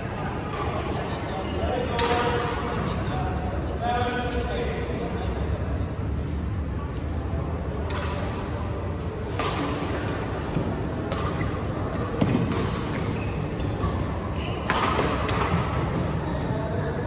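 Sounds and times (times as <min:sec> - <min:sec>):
racket hitting shuttlecock: 0:01.9 - 0:02.7, 0:07.8 - 0:08.6, 0:09.2 - 0:16.1.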